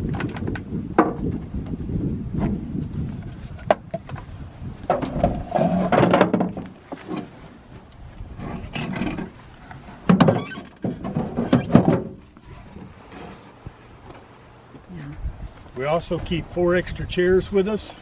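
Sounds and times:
plastic tote scraping and knocking: 4.9 - 7.3, 10.1 - 13.4.

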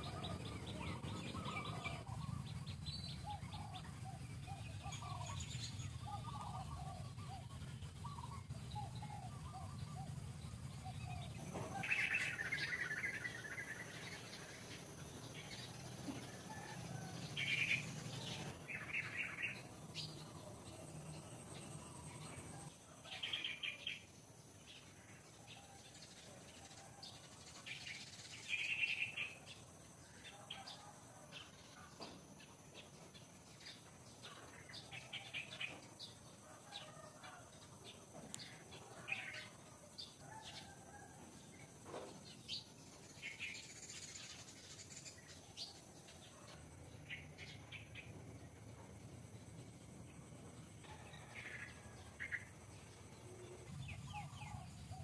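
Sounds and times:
birds chirping: 0.0 - 24.1, 50.9 - 55.0.

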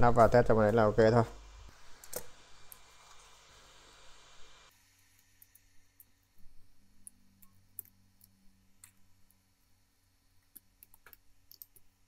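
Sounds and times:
small clicks and taps of tool: 10.4 - 11.9.

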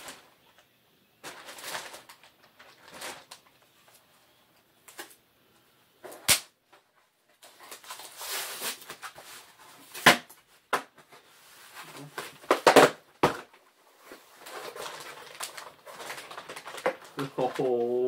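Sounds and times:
cardboard box rustling and crinkling: 14.0 - 17.9.

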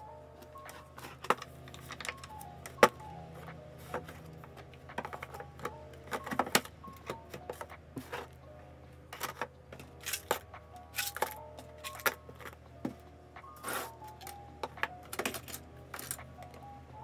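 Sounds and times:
background music with held notes: 0.0 - 17.0
pens clicking and clacking: 13.6 - 16.6.

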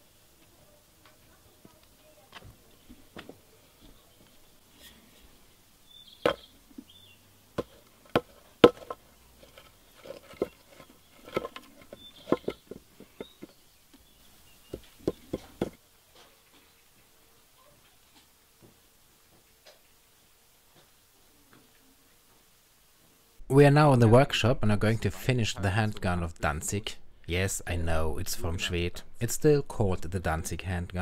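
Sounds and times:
mold pieces knocking on wooden board: 7.6 - 13.6, 14.7 - 15.8.

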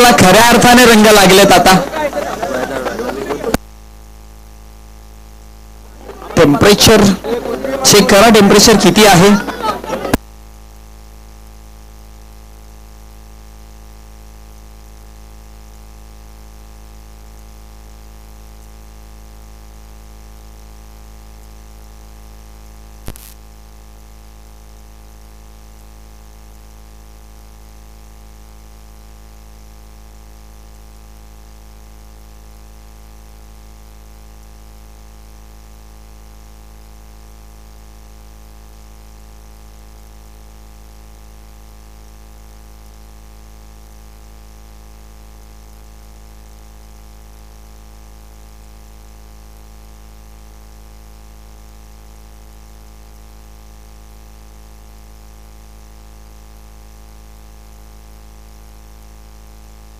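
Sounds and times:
electrical hum and hiss: 0.0 - 59.9
sharp click: 23.0 - 23.4.

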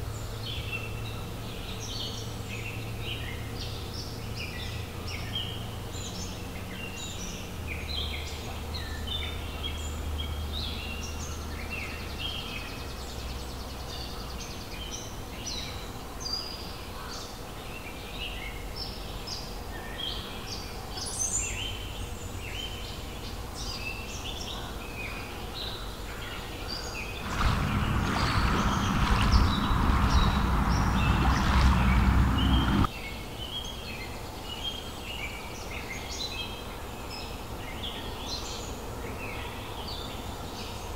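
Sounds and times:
forest birds chirping: 0.0 - 40.8
low steady rumble: 27.1 - 32.9
loud rushing noise: 27.2 - 32.9.

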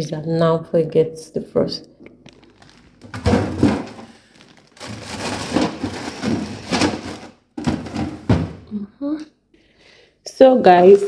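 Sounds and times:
frozen packets shifting: 2.0 - 8.2
plastic bag rustling: 2.1 - 8.5.

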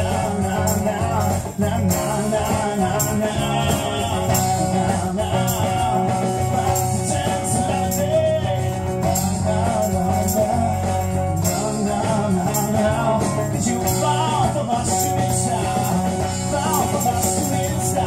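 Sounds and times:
live band playing: 0.0 - 18.0
person singing: 0.0 - 18.0.

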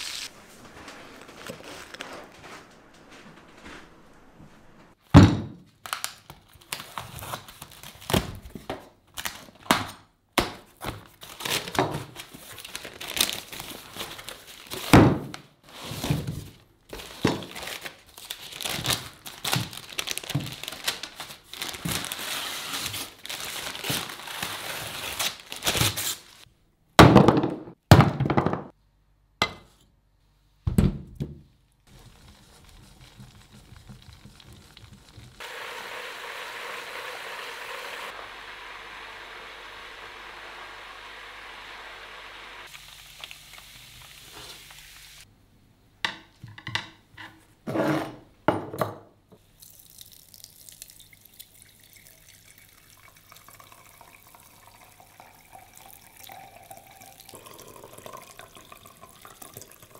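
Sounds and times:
paper wrapper crinkling and tearing: 0.0 - 3.7, 5.8 - 8.5, 10.9 - 14.9, 17.0 - 26.5.

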